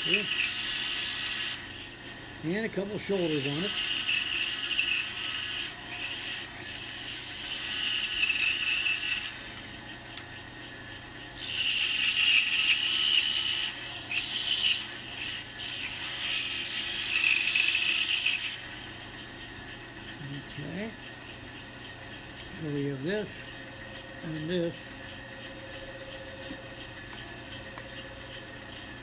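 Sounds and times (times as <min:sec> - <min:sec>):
bandsaw cutting wood: 0:00.0 - 0:09.6, 0:11.4 - 0:18.6
steady motor hum: 0:00.0 - 0:29.0.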